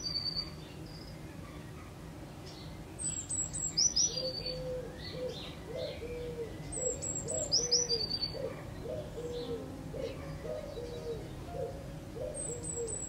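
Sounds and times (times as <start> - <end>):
low cooing notes: 4.3 - 13.0
bird song falling notes: 6.6 - 13.0.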